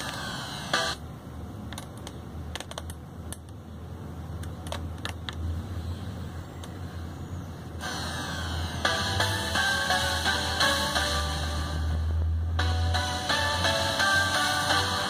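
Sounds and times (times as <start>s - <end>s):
low steady hum: 0.0s - 15.0s
car stereo music: 7.8s - 15.0s.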